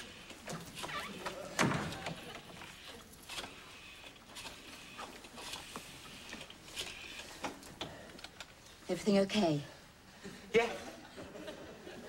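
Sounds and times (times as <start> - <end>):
door closing with thud: 1.5 - 2.2.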